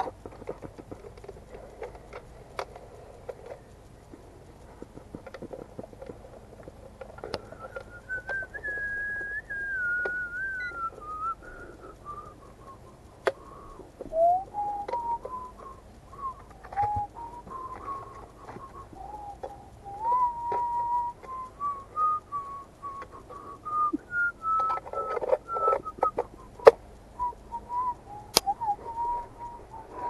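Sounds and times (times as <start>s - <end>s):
person whistling a slow tune: 7.1s - 30.0s.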